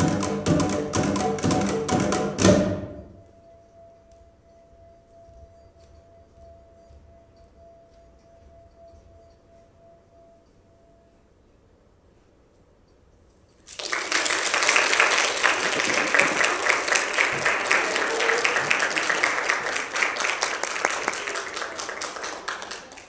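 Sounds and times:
audience applauding: 13.7s - 23.0s.

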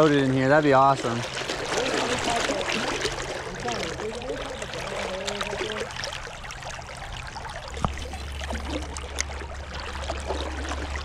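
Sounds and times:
creek water rushing: 0.0s - 11.0s
steady low rumble: 5.6s - 11.0s.

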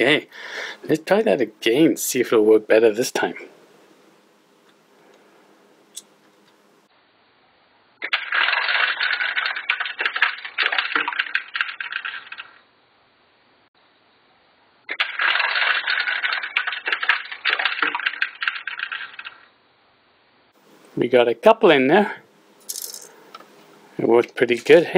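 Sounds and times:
plastic pieces rattling down chute: 8.0s - 12.6s, 14.9s - 19.4s, 22.7s - 23.1s.

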